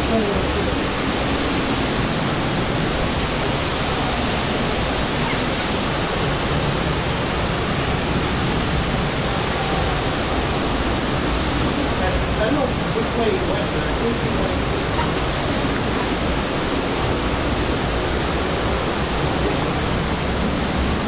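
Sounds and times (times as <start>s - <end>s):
flowing cave stream: 0.0s - 21.0s.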